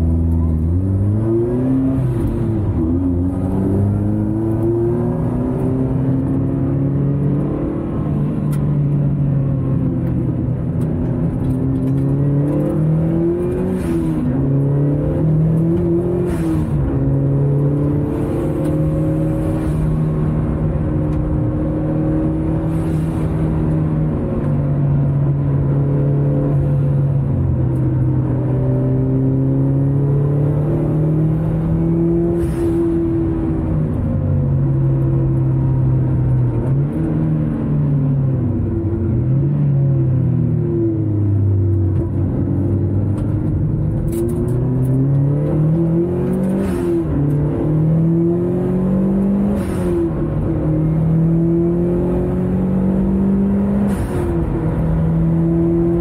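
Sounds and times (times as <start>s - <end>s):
car engine accelerating: 0.0s - 56.0s.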